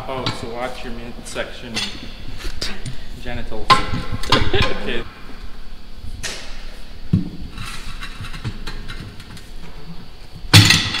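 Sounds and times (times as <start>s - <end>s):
tire iron scraping and creaking: 6.0s - 11.0s.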